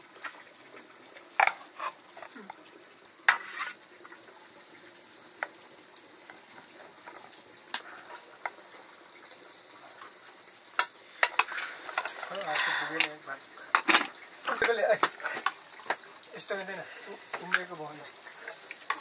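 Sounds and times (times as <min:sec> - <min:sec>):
faint steady hiss: 0:00.0 - 0:19.0.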